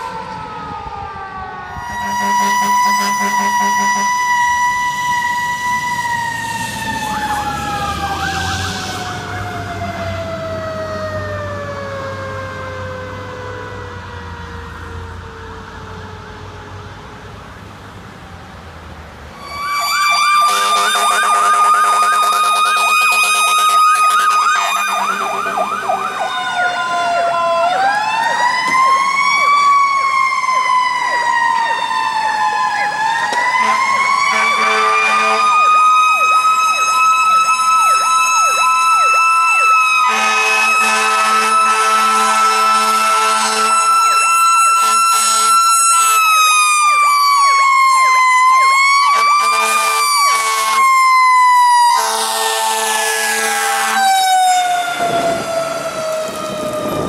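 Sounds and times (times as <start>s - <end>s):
fire truck siren: 0.0s - 57.0s
loud fire truck siren wailing: 0.0s - 57.0s
fire truck horn tones: 1.8s - 4.4s, 19.4s - 27.3s, 33.5s - 36.0s, 40.0s - 46.6s, 49.0s - 55.4s.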